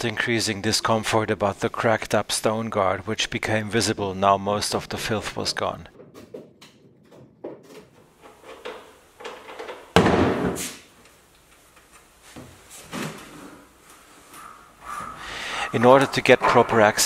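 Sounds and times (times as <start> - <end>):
workshop knocks and handling: 5.8 - 10.8.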